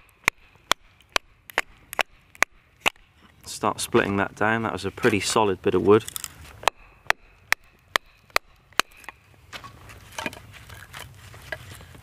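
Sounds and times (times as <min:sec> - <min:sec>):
wood scraping and rustling: 0:09.3 - 0:12.0.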